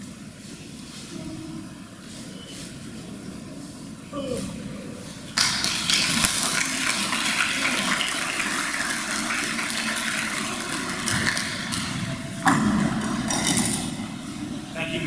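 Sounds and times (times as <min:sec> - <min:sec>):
audience applauding: 0:05.4 - 0:14.0.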